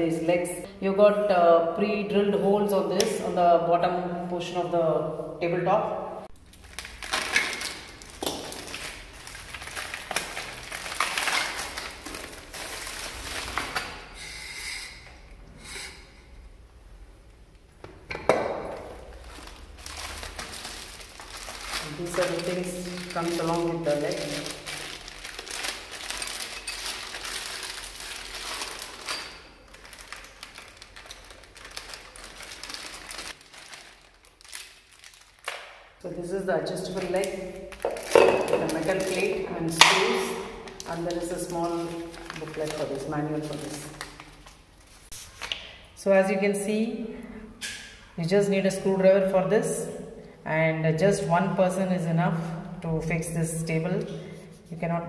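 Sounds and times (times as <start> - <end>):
packaging crinkling and rustling: 6.4 - 14.2, 18.6 - 36.0, 36.8 - 45.7.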